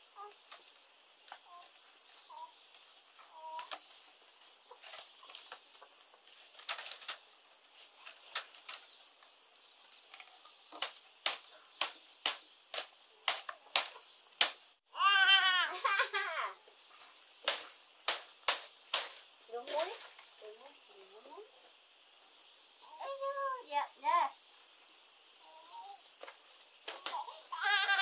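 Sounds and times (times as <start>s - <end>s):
baby babbling: 25.4s - 26.0s.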